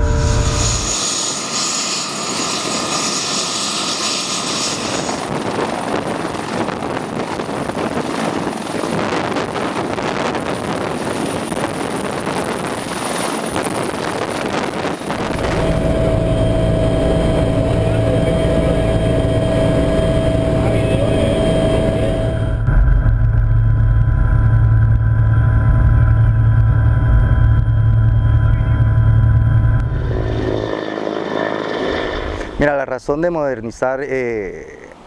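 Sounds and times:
helicopter rotor noise: 0:00.0 - 0:33.0
helicopter turbine whine: 0:00.0 - 0:35.0.

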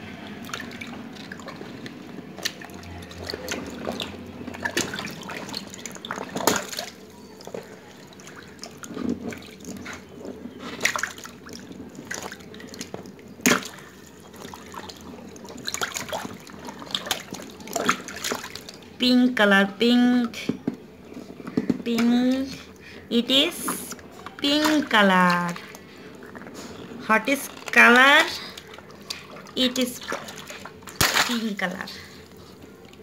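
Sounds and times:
water balloons sloshing: 0:00.0 - 0:19.0, 0:20.8 - 0:33.0
water splashing and dripping: 0:00.1 - 0:19.0, 0:28.4 - 0:31.6
water balloon bursting pop: 0:31.0 - 0:31.4.

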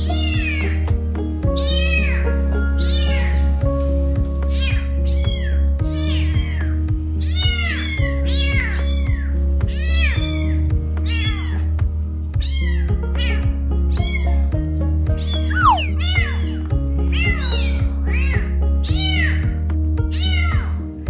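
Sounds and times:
background music with steady beat: 0:00.0 - 0:21.0
kittens mewing: 0:01.6 - 0:03.5, 0:04.5 - 0:11.7, 0:12.4 - 0:14.3, 0:15.2 - 0:19.4.

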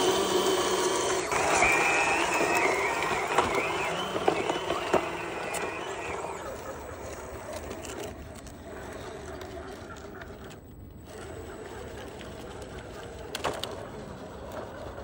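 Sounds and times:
small electric motors whining: 0:00.0 - 0:15.0
tracks clicking and scraping on rock: 0:00.1 - 0:15.0.

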